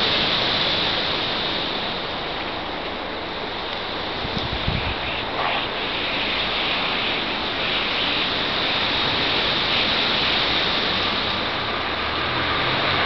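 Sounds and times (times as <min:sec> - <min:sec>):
flock of birds calling: 0:04.5 - 0:10.7.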